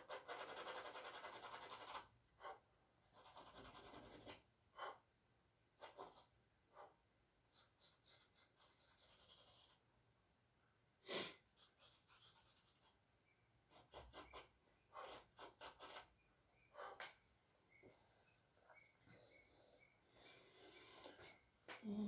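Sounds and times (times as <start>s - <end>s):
charcoal scratching on canvas: 0.0s - 5.0s, 5.8s - 9.8s, 11.6s - 13.0s, 13.7s - 17.1s.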